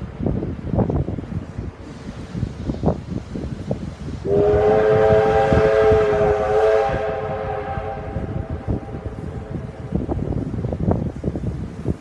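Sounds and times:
steam locomotive whistle: 4.2s - 9.8s.

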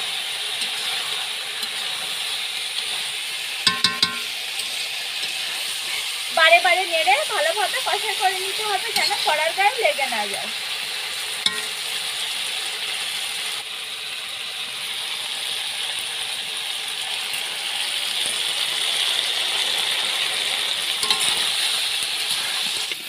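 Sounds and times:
meat and potatoes sizzling: 0.0s - 23.0s
spatula scraping a pan: 0.5s - 6.3s, 8.9s - 9.4s, 21.0s - 23.0s.

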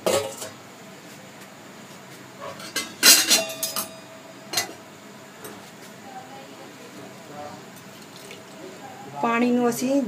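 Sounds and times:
metal kitchenware clinking: 2.4s - 4.8s.

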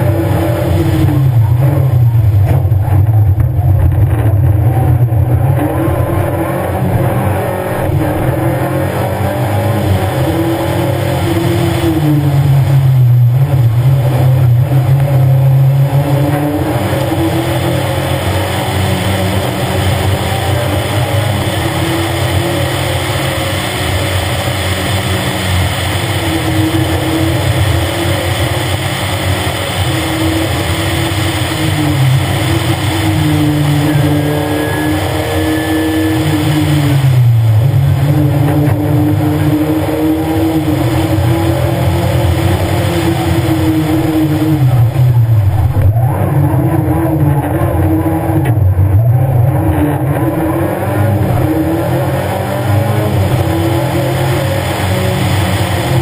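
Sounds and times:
rally car engine accelerating: 0.0s - 56.0s.

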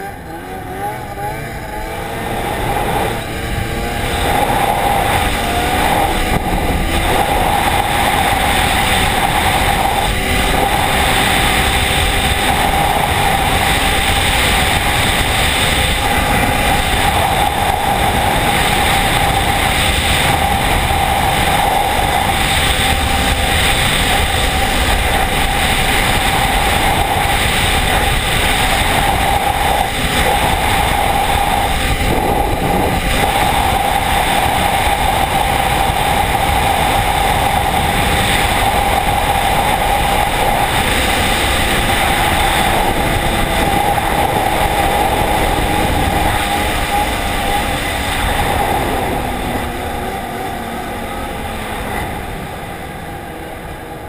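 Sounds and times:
snowmobile engine high note: 0.0s - 54.0s
wind rush on microphone: 0.0s - 54.0s.

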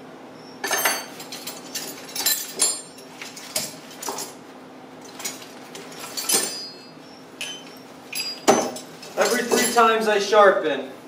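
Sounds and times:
metal hand tools clinking: 5.0s - 10.1s.

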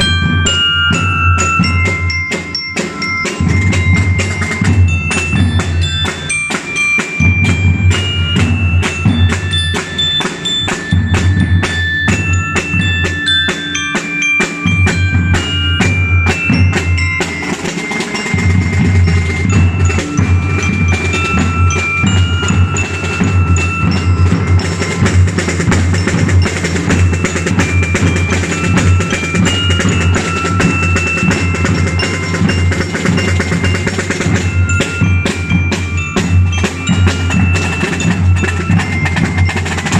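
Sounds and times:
bass drums and snare drums: 0.0s - 39.9s
bell lyres playing high melody: 0.0s - 39.9s.

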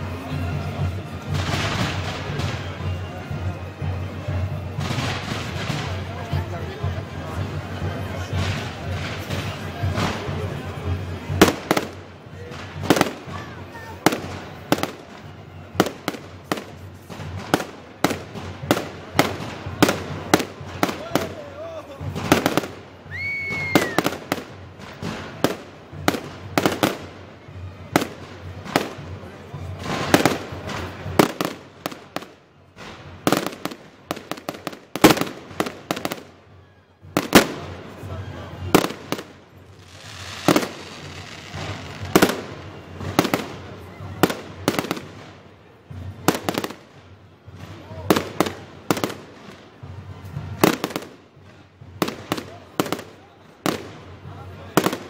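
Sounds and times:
firework crackling: 0.0s - 55.0s
fireworks bangs and pops: 0.0s - 55.0s
firework whistle: 23.0s - 24.2s.

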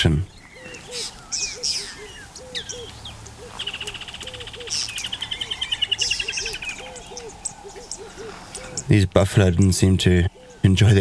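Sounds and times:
high bird chirps: 0.3s - 8.9s.

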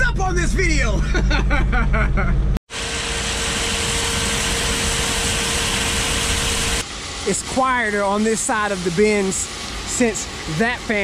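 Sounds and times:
aeration fan rushing with tone: 2.7s - 11.0s.

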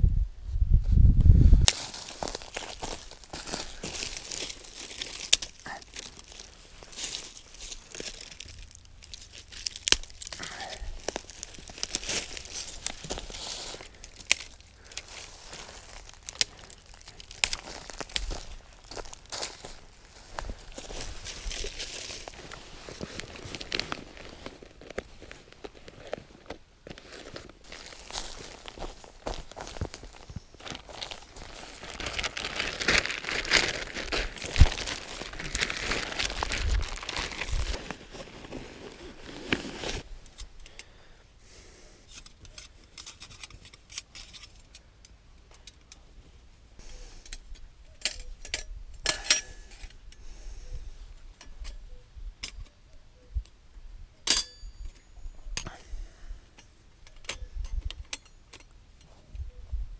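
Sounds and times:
plastic tarp rustling: 26.9s - 40.1s.

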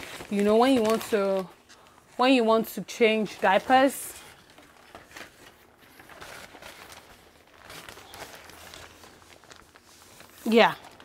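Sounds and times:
fabric rustling: 3.0s - 11.0s.

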